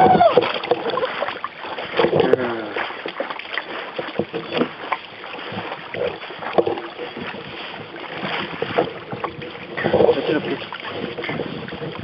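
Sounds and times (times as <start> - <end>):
loud splash: 0.0 - 3.8
water splashing against canoe: 0.0 - 12.0
knocks on canoe hull: 1.9 - 2.4, 6.4 - 10.0.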